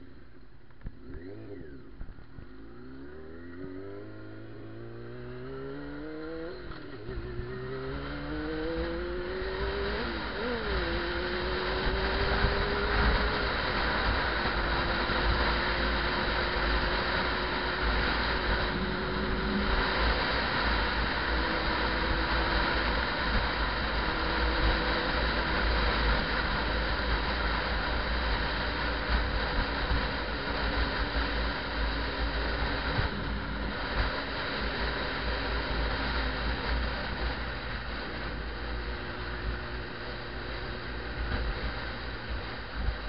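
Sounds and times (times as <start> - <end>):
motorcycle engine drone: 0.0 - 43.0
wind rushing over microphone: 6.3 - 38.5.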